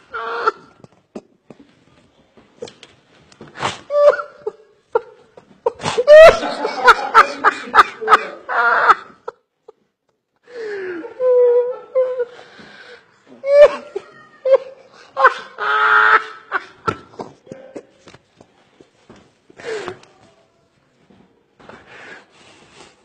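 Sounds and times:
man laughing hysterically: 6.0 - 9.4, 13.5 - 17.0.

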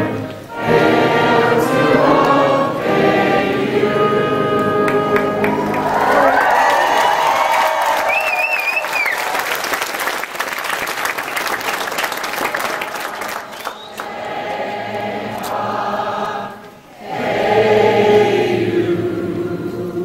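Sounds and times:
group of voices singing: 0.0 - 6.6, 13.8 - 20.0
audience clapping and cheering: 0.6 - 16.3
wavering whistle: 7.9 - 9.3, 13.6 - 14.0.

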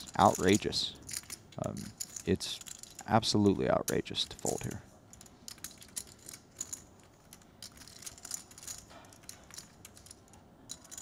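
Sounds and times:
poker chips clicking: 0.0 - 3.1, 3.9 - 11.0.

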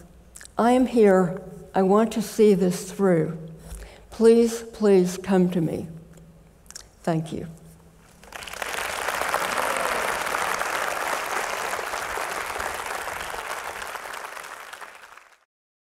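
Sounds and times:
audience applauding: 8.2 - 15.5.

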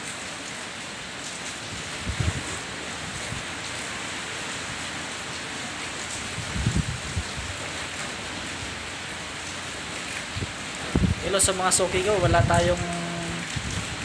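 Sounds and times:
heavy rain hissing: 0.0 - 14.0
wind buffeting microphone: 1.7 - 4.1, 6.1 - 8.8, 9.8 - 14.0.

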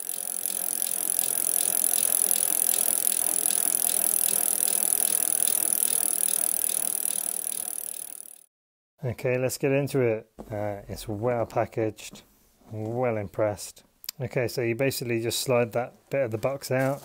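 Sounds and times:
bicycle hub ticking: 0.0 - 8.5.

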